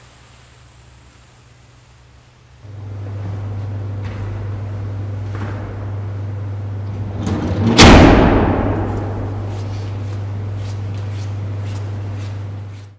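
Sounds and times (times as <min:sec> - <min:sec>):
steady low hum: 0:00.0 - 0:12.9
heavy slam echoing: 0:03.4 - 0:10.6.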